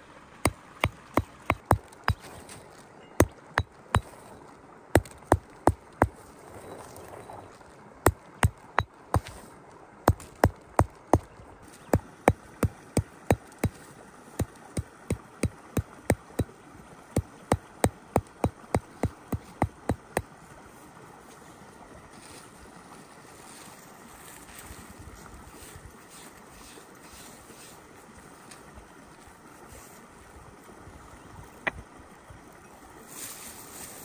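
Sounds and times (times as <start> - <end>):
outdoor background noise: 0.0 - 34.0
sharp knocks: 0.8 - 2.4.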